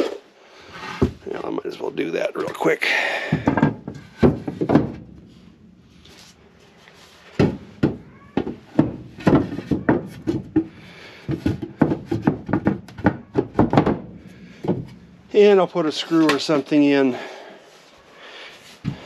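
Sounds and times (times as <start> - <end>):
wooden floorboards knocking and clattering: 3.2 - 5.4, 7.3 - 15.0.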